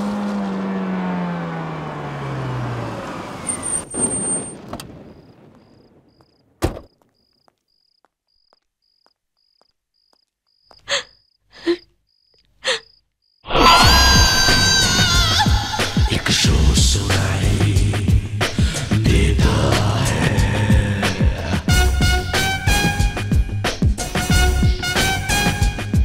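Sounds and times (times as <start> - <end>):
jeep engine winding down: 0.0 - 4.2
car door shutting bang: 6.6 - 6.9.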